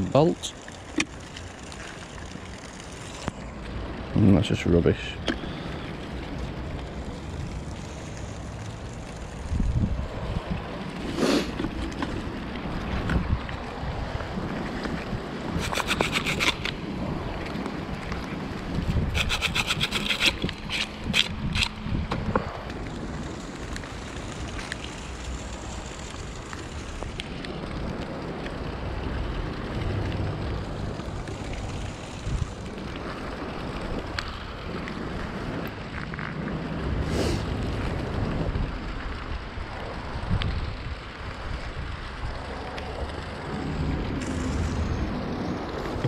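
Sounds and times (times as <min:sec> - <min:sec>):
wind noise on microphone: 0:06.0 - 0:46.0
metallic clicks and scrapes: 0:15.6 - 0:16.8, 0:19.0 - 0:21.8.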